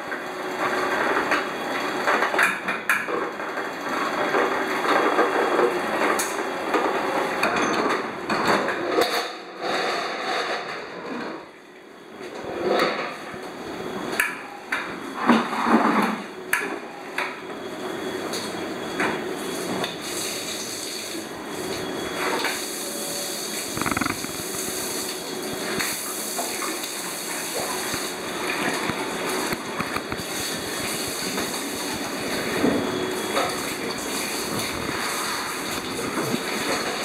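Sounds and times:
clatter and knocks: 0:23.8 - 0:24.4.

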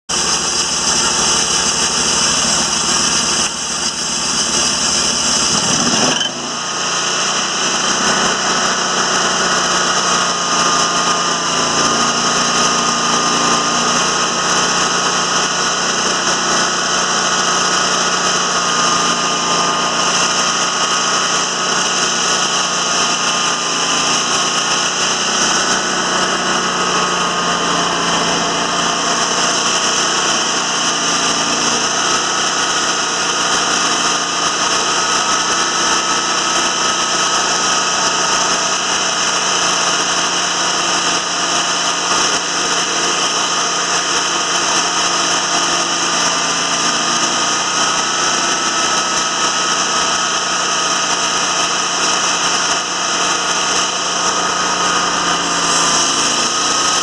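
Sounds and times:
sawmill engine running: 0:00.1 - 0:57.0
hydraulic hum: 0:37.7 - 0:57.0.

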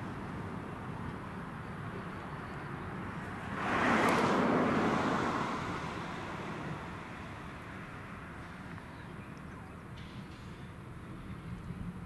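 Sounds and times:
diesel locomotive rumble: 0:00.0 - 0:12.0
vehicle passing at speed: 0:03.0 - 0:08.7.

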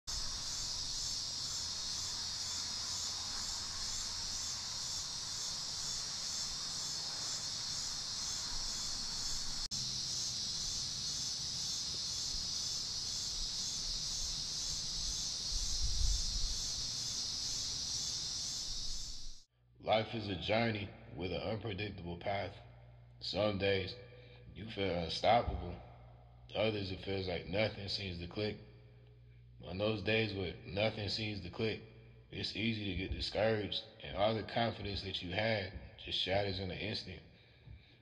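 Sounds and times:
insects buzzing shrilly: 0:00.1 - 0:19.5.

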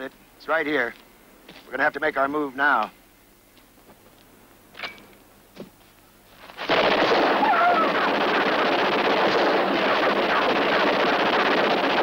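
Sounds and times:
rapid gunfire: 0:06.6 - 0:12.0.

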